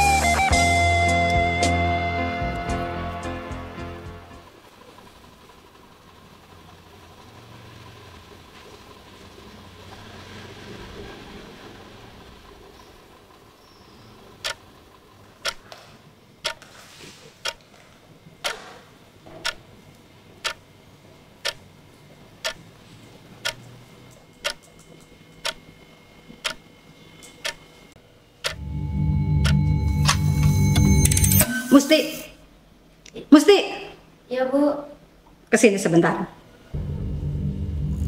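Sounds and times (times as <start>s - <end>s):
clock ticking: 15.4s - 15.6s, 16.4s - 16.6s, 17.4s - 17.6s, 20.4s - 20.6s, 21.4s - 21.6s, 23.4s - 23.7s, 24.4s - 24.8s, 25.4s - 25.6s, 26.4s - 26.6s, 27.4s - 27.6s
loud deep held tones: 28.6s - 31.4s, 36.8s - 38.0s.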